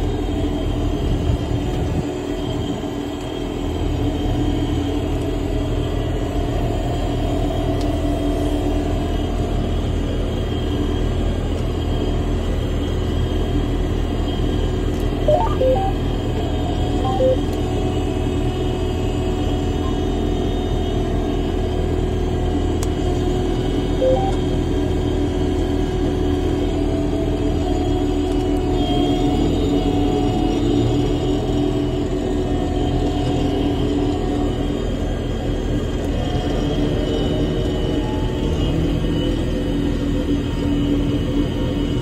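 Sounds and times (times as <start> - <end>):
sprayer engine rumble and hum: 0.0 - 42.0
short electronic beeps: 15.3 - 16.0, 17.0 - 17.5, 24.0 - 24.4.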